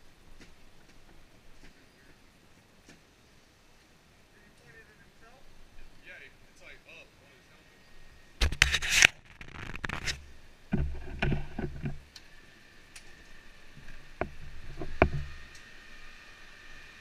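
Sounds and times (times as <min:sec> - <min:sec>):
scraping and rubbing on camera: 0:08.4 - 0:12.0.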